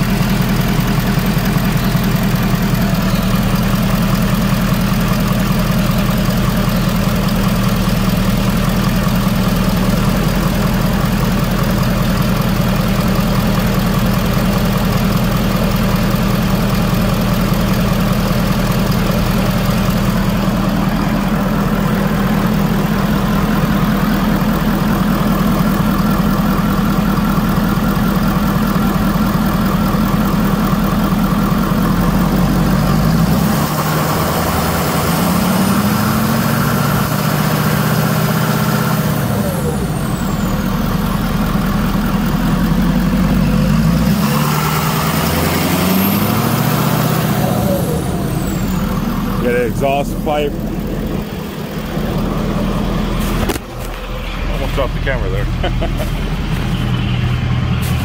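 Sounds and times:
diesel engine idling and revving: 0.0s - 58.0s
high turbo whine: 0.0s - 58.0s.

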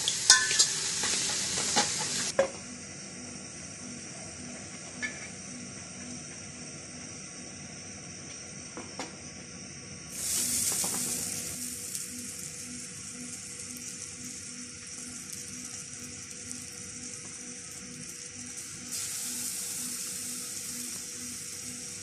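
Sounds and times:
butter sizzling in a frying pan: 0.0s - 2.3s, 10.1s - 22.0s.

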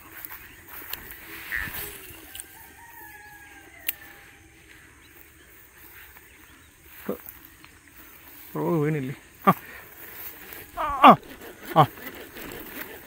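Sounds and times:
rooster crowing: 1.5s - 4.8s.

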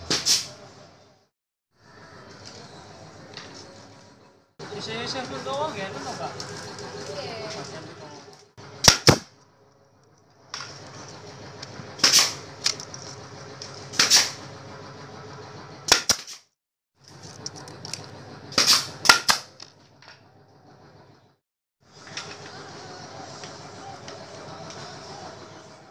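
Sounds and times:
steady background noise: 1.8s - 16.1s, 21.9s - 25.9s
nail gun firing: 8.8s - 9.3s, 12.0s - 12.4s, 13.9s - 14.4s, 15.9s - 16.4s, 18.5s - 19.5s.

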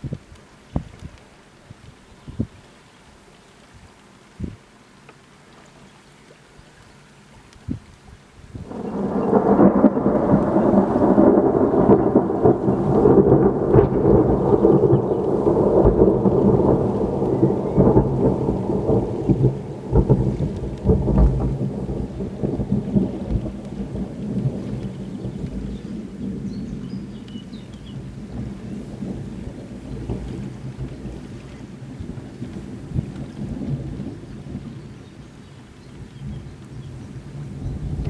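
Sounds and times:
thunder rumbling: 8.6s - 35.4s, 36.1s - 38.0s.

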